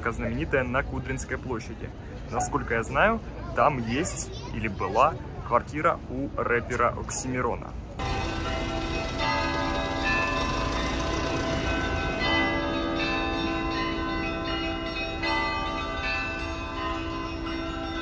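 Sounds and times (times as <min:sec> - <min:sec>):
passing street traffic hum: 0:00.0 - 0:18.0
church bells ringing: 0:08.0 - 0:18.0.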